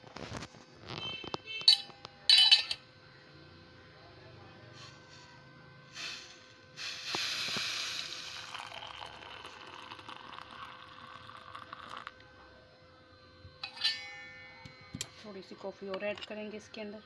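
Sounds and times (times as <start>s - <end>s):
milk pouring into mug: 7.5s - 12.3s.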